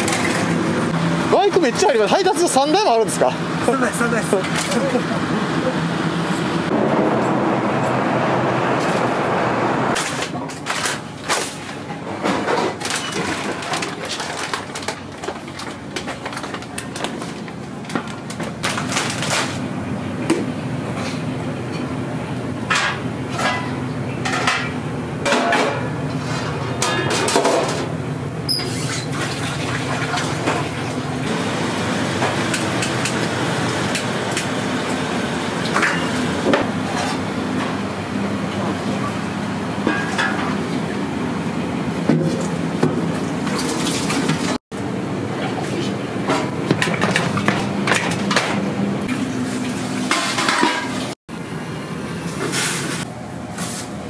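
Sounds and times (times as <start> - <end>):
pots and utensils clanking: 22.7 - 27.9, 35.7 - 37.7, 39.8 - 40.6, 46.3 - 51.2.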